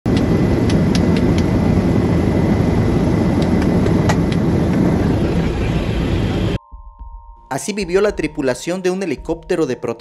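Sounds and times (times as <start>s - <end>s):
helicopter rotor and turbine drone: 0.1s - 6.6s.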